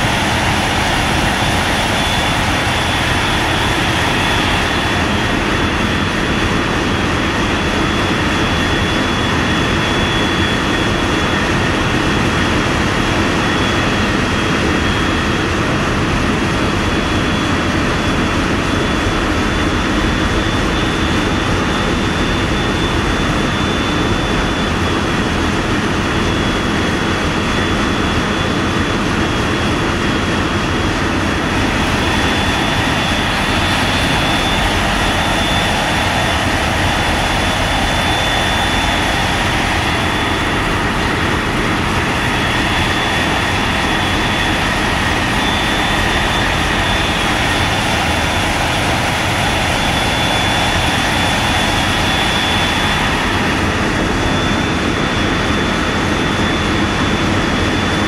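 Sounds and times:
ship engines droning: 0.0s - 17.1s, 28.0s - 57.6s
thin high whine: 30.6s - 56.5s.

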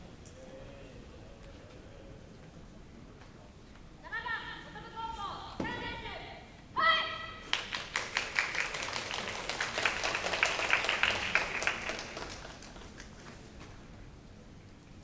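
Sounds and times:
audience applause: 7.5s - 13.4s.

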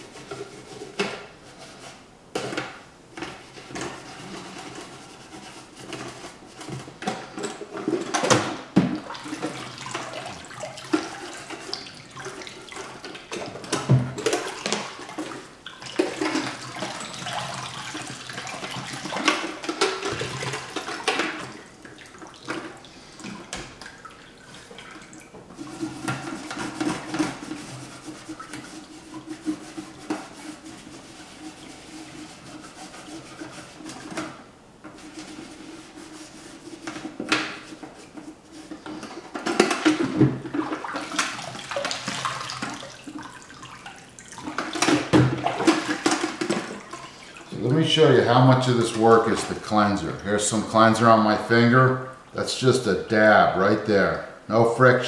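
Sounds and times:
water splashing in sink: 7.9s - 34.2s, 39.4s - 51.2s
toothbrush scrubbing metal: 25.6s - 34.2s.

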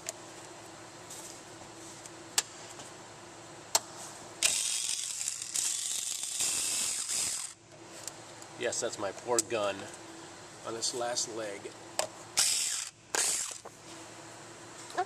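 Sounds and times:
cordless impact gun running: 4.4s - 7.6s, 12.4s - 13.7s.

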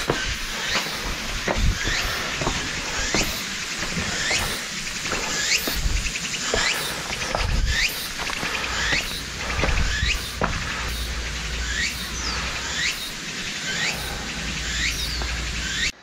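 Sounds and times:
insects hissing: 0.0s - 16.0s
wind rumble on microphone: 5.0s - 6.3s, 7.1s - 11.6s.

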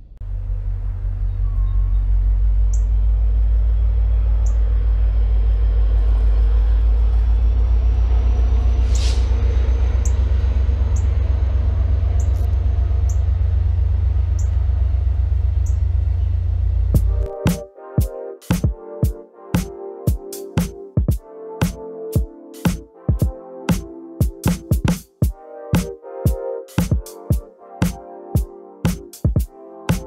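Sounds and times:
brief hiss: 8.9s - 9.3s.

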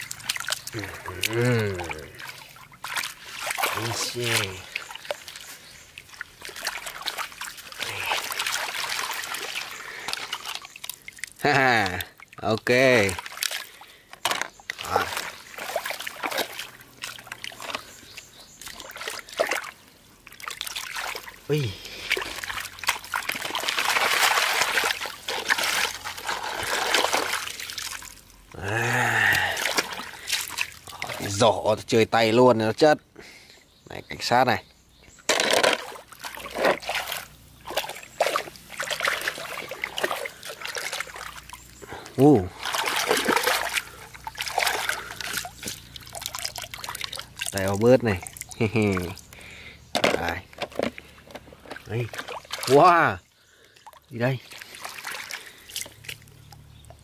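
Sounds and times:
water trickling through basket: 0.0s - 31.9s, 35.3s - 57.0s
water sloshing and splashing: 0.0s - 32.0s, 35.1s - 57.0s
person making low vocal sound: 0.7s - 2.3s, 28.5s - 29.8s.

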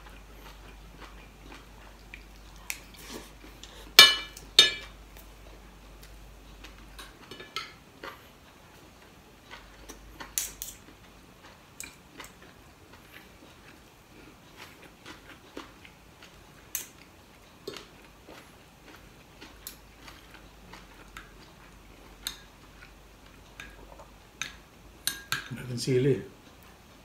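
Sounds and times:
cutlery clinking on a ceramic plate: 4.0s - 4.9s, 7.0s - 7.8s, 24.4s - 25.5s.

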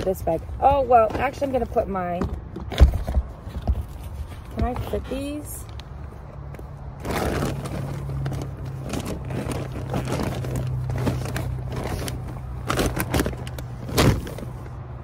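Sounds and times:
plastic bag rustling: 3.0s - 14.8s.

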